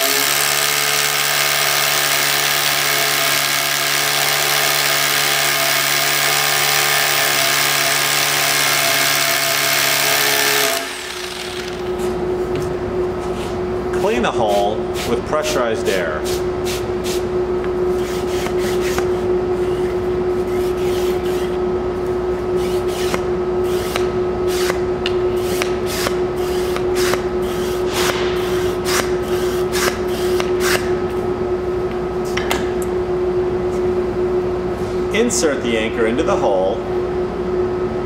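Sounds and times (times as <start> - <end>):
steady hum: 10.2 - 38.0.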